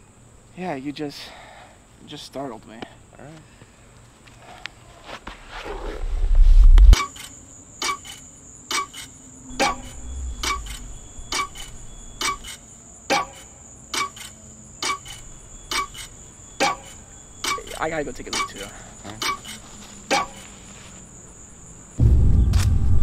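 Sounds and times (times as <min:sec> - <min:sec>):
steady high whine: 0:05.8 - 0:07.4, 0:08.8 - 0:23.0
deep low boom: 0:06.0 - 0:07.0, 0:09.5 - 0:12.0, 0:22.0 - 0:23.0.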